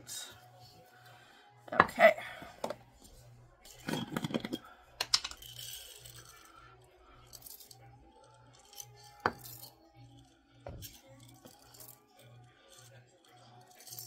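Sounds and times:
chips dropping into ceramic mug: 3.7 - 5.6
chocolate chips rattling in glass jar: 3.7 - 6.5, 8.5 - 10.2, 10.8 - 14.0.

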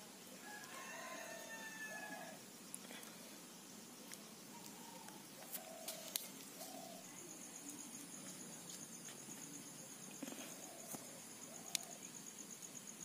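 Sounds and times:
insect trilling: 0.0 - 13.0
faint ticks: 11.7 - 12.0.

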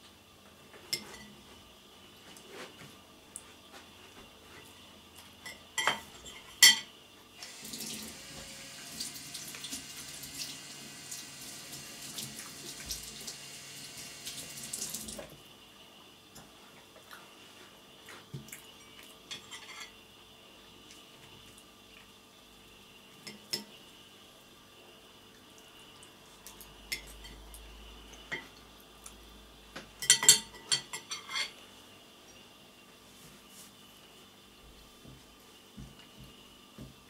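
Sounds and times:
dishes clinking: 5.4 - 6.9, 30.0 - 31.6
tap water running: 7.4 - 15.4
cutlery clinking: 18.8 - 20.0, 30.0 - 31.6.

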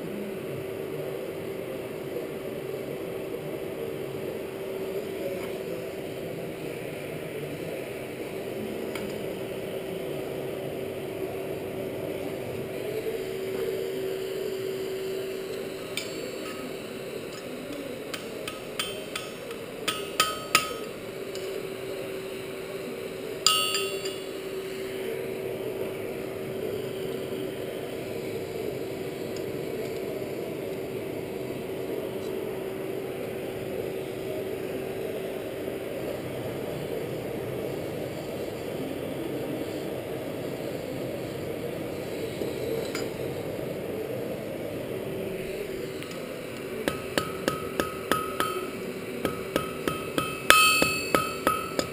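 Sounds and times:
forge blower humming: 0.0 - 51.9
hammer striking metal on anvil: 18.1 - 21.0, 23.5 - 24.3, 46.8 - 51.9.

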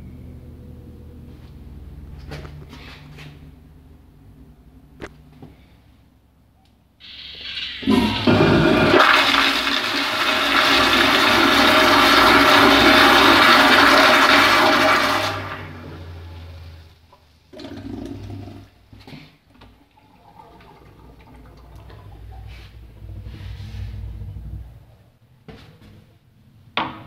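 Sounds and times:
toilet flushing water rush: 7.0 - 24.9.

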